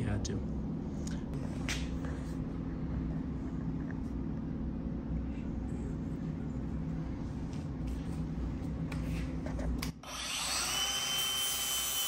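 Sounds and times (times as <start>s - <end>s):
angle grinder grinding metal: 10.1s - 12.0s.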